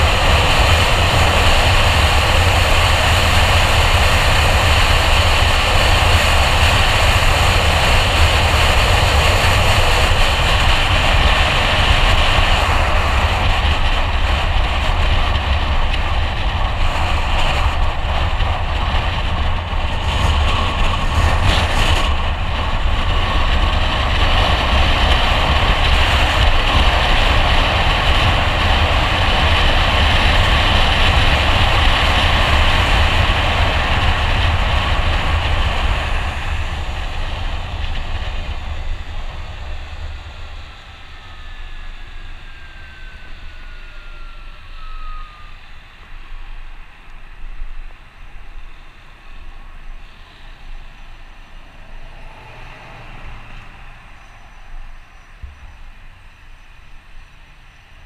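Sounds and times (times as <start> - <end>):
faint falling whine: 0.0 - 58.0
wind rush and road noise: 0.0 - 58.0.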